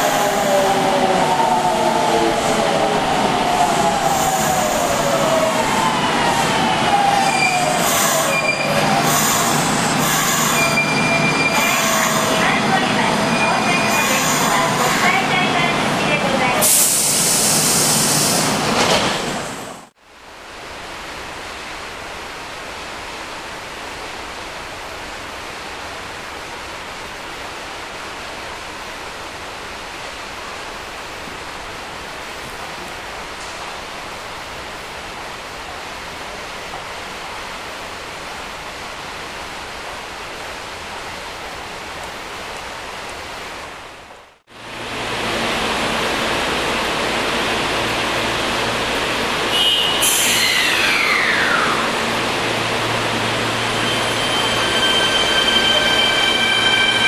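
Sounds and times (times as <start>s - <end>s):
subway train running with hiss: 0.0s - 20.0s, 44.5s - 57.0s.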